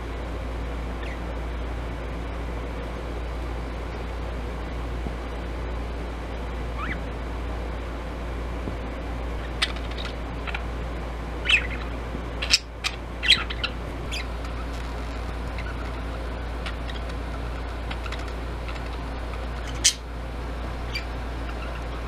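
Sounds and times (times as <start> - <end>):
low background hum: 0.0 - 22.0
budgerigar chirping: 1.0 - 1.2, 6.8 - 7.0, 9.4 - 10.6, 11.4 - 14.7, 15.4 - 20.1, 20.8 - 22.0.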